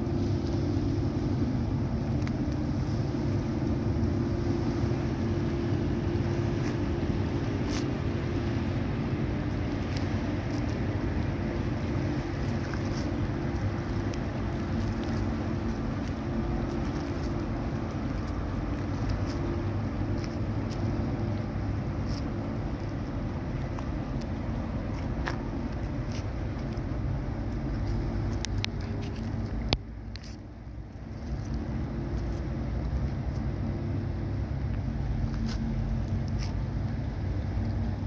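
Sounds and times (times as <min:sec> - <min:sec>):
ship diesel engines droning: 0:00.0 - 0:38.0.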